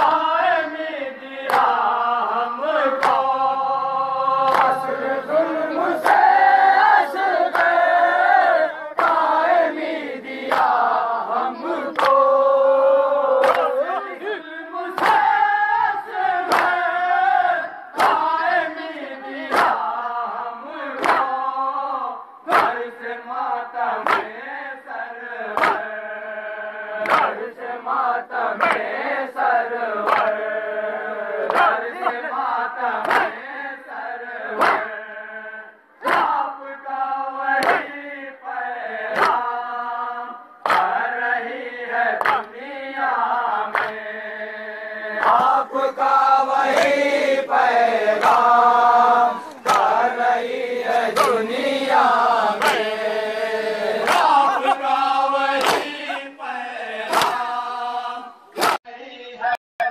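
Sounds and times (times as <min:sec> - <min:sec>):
mourners chanting a lament: 0:00.0 - 0:59.9
rhythmic chest-beating strikes: 0:57.1 - 0:58.8.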